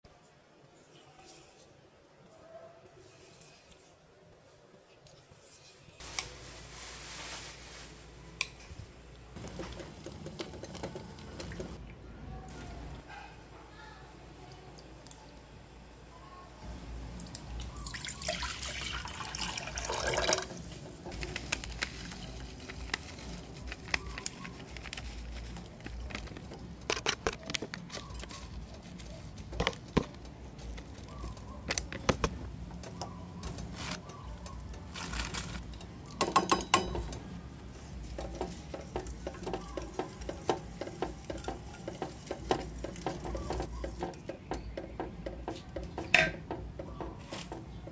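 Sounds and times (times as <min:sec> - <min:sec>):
water pouring into metal pot: 0:17.6 - 0:20.8
whisk ticking against pot: 0:38.0 - 0:47.1.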